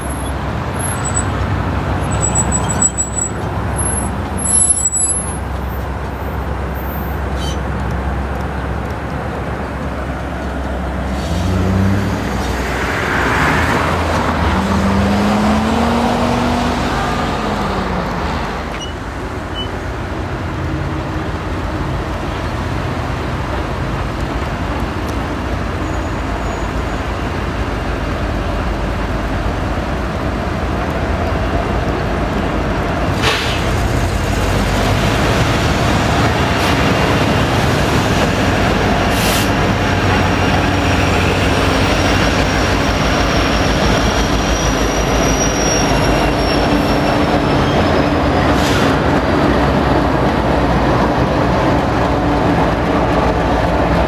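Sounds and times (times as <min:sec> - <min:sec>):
diesel locomotives rumbling: 0:00.0 - 0:54.0
hiss: 0:33.1 - 0:34.3, 0:39.1 - 0:39.6.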